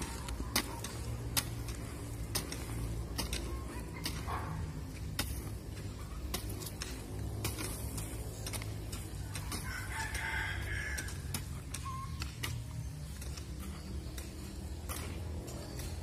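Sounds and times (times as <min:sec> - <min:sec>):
hoe chopping into soil: 0:00.0 - 0:16.0
rooster crowing: 0:09.5 - 0:11.3.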